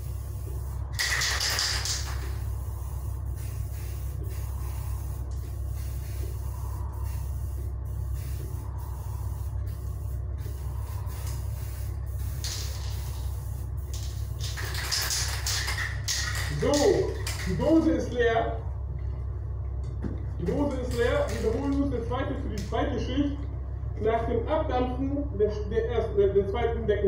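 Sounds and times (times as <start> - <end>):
spray can hissing: 0.0 - 17.5
steady low hum: 0.0 - 27.0.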